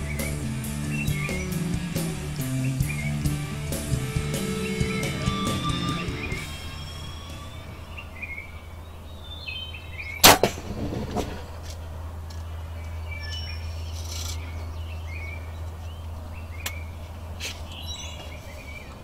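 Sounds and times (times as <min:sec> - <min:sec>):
steady low hum: 0:00.0 - 0:09.2
songbirds chirping: 0:00.0 - 0:10.3, 0:11.8 - 0:19.0.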